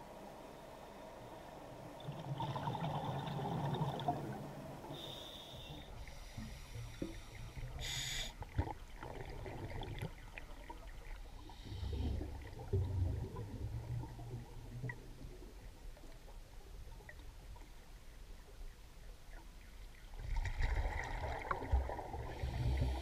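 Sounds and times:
exhaled bubbles rushing: 0:02.0 - 0:04.5, 0:08.5 - 0:10.8, 0:12.2 - 0:15.2, 0:20.2 - 0:22.5
diver inhaling through regulator: 0:04.9 - 0:08.4, 0:22.3 - 0:23.0.

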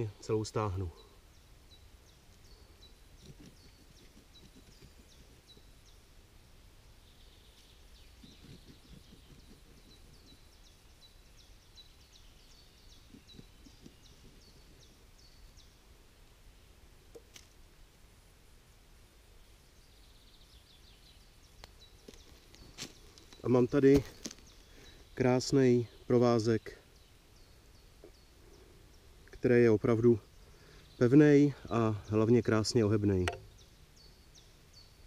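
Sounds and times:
small bird chirping: 0:00.5 - 0:06.2, 0:07.0 - 0:15.8
scraping and rustling of root: 0:22.0 - 0:24.7.

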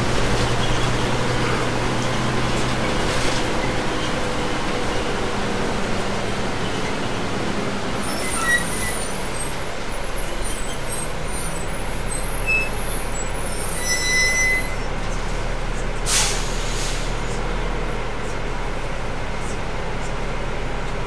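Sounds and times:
squeaks and rattles from bus body: 0:00.0 - 0:16.0
brake squeal: 0:00.0 - 0:17.5
bus engine drone: 0:00.0 - 0:21.0
road noise: 0:00.0 - 0:21.0
air brakes hiss: 0:16.0 - 0:17.2.

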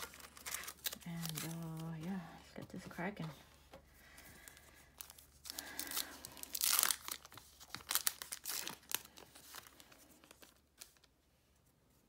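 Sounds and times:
foil wrapper tearing and crinkling: 0:00.0 - 0:02.0, 0:05.0 - 0:11.1.

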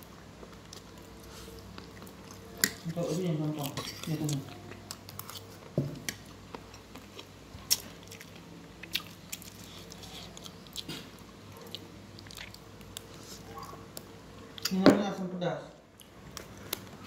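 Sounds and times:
chewing and crunching food: 0:00.0 - 0:14.8.

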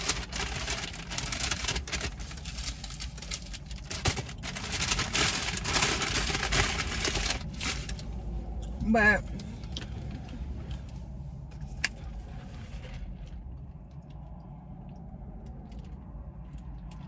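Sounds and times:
food packaging crinkling: 0:00.0 - 0:08.1
low traffic rumble: 0:00.0 - 0:17.0.

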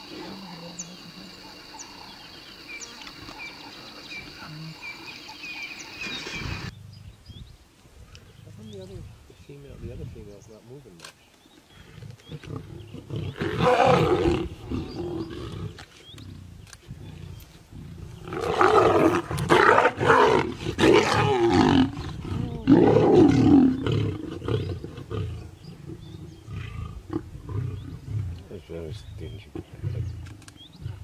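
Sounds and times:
lions snarling and growling: 0:11.8 - 0:31.0.

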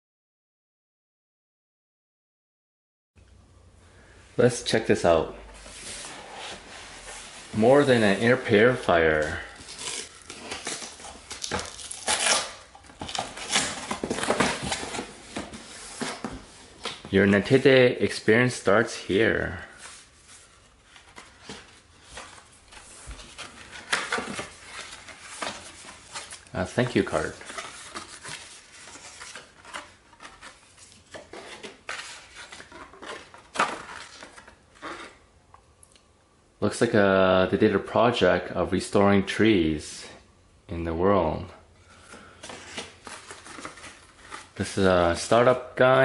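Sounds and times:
paper rustling against cardboard: 0:05.6 - 0:17.6, 0:19.7 - 0:35.2, 0:42.0 - 0:45.5.

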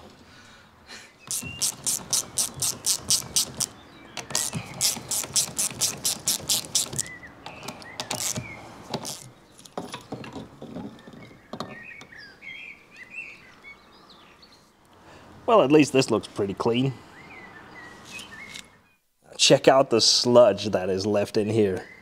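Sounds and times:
ratchet wrench clicking: 0:01.3 - 0:07.1, 0:08.1 - 0:08.4.

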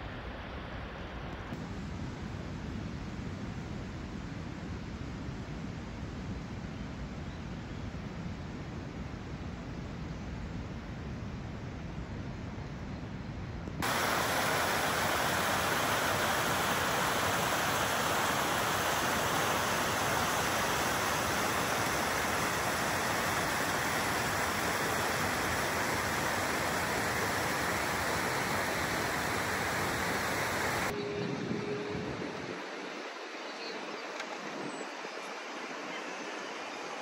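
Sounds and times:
stream rushing over rocks: 0:13.8 - 0:31.0.

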